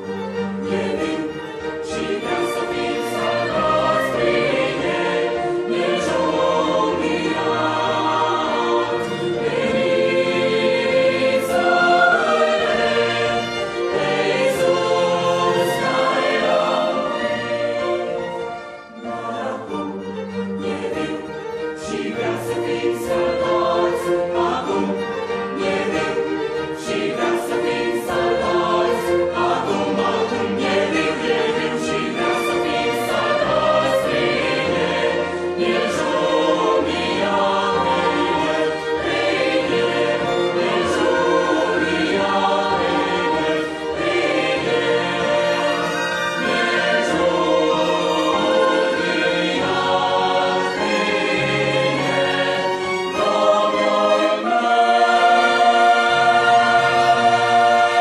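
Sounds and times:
mixed choir singing: 0.0 - 58.0
string ensemble: 0.0 - 58.0.

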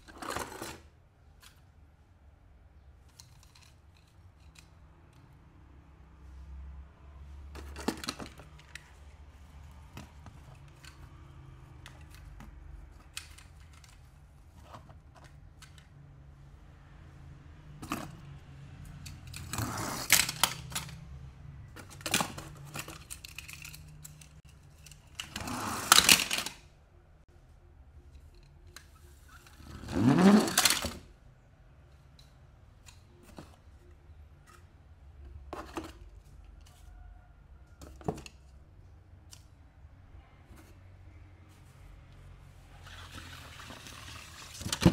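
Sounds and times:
toy cars clattering: 0.0 - 1.7, 3.0 - 5.3, 7.5 - 9.1, 9.9 - 15.9, 17.8 - 26.7, 28.1 - 31.1
toy cars clicking and clinking: 3.0 - 5.3, 10.5 - 14.2, 18.9 - 21.1, 21.8 - 26.6, 28.2 - 31.1.

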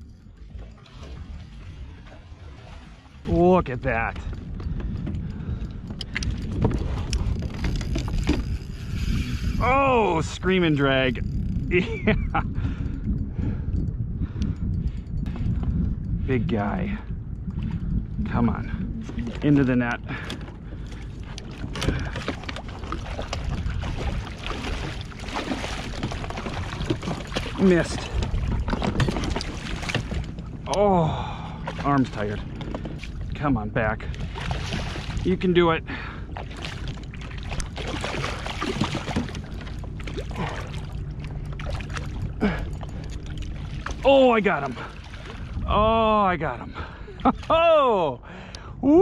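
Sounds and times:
water sloshing against hull: 0.0 - 48.8
fish thrashing and splashing: 21.2 - 30.6, 34.2 - 35.3, 36.3 - 45.6.

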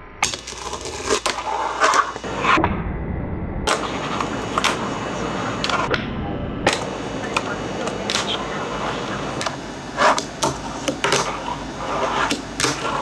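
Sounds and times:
fingerboard trucks grinding: 0.4 - 2.6, 8.1 - 13.0
steady hiss: 3.7 - 5.9, 6.7 - 13.0.

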